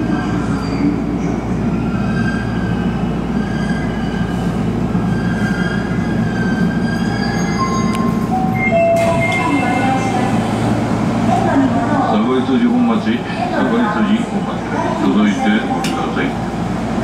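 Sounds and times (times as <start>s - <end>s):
wheels and brakes squealing: 0.0s - 9.9s
train running rumble: 0.0s - 17.0s.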